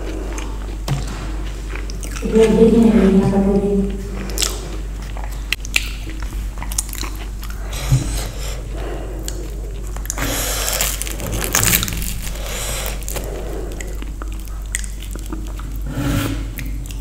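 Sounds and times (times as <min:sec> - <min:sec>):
person crunching crisp snacks: 0:09.3 - 0:15.9.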